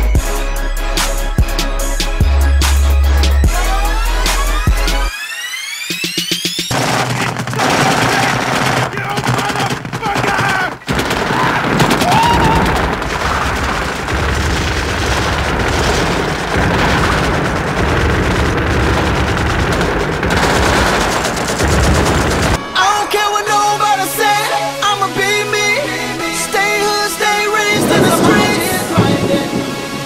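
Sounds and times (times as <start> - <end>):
people shouting: 6.7 - 13.3
machine-gun and rifle fire: 6.7 - 22.6.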